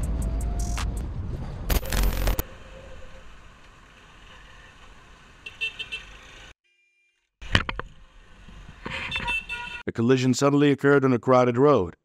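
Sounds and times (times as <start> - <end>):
road noise: 0.0 - 6.6, 7.4 - 9.9
car horn toot: 5.4 - 6.1, 9.0 - 9.9.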